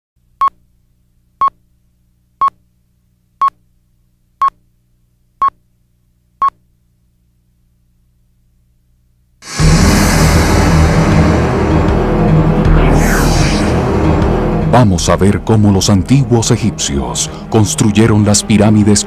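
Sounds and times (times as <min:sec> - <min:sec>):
faint low hum: 0:00.2 - 0:09.4.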